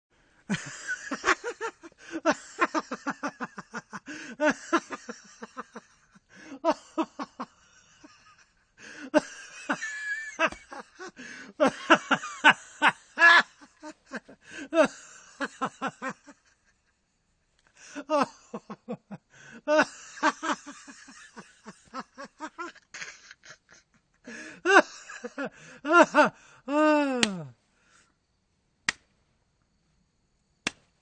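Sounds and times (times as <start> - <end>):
man laughing hard: 0.5 - 16.9, 17.8 - 27.5
hand slapping knee: 10.5 - 10.8, 27.2 - 27.5, 28.8 - 29.1, 30.6 - 31.0.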